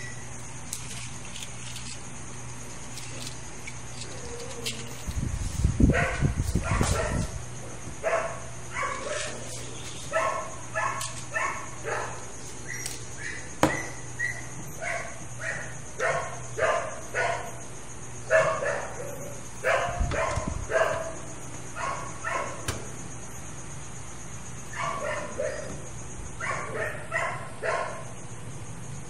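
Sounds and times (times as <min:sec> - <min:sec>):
dog barking: 0:05.9 - 0:07.4, 0:08.0 - 0:09.4, 0:10.1 - 0:12.2, 0:14.2 - 0:17.6, 0:18.3 - 0:21.2, 0:21.8 - 0:22.6, 0:24.7 - 0:25.7, 0:26.4 - 0:28.1.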